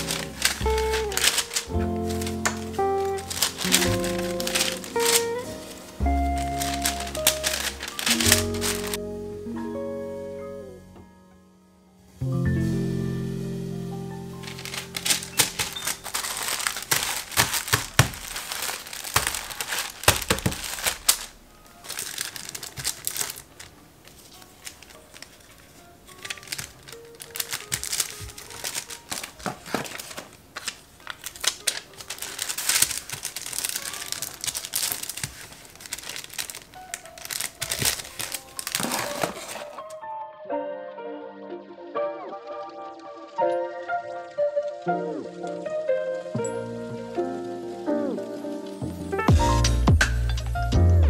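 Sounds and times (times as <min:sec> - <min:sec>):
paper bags crinkling: 0:00.0 - 0:09.0, 0:14.1 - 0:40.0
background music: 0:00.0 - 0:51.0.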